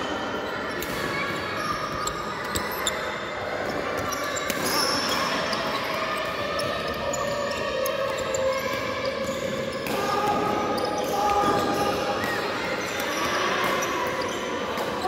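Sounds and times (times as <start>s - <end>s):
echoing murmur of hall: 0.0s - 15.0s
shoes squeaking on court: 0.7s - 9.9s.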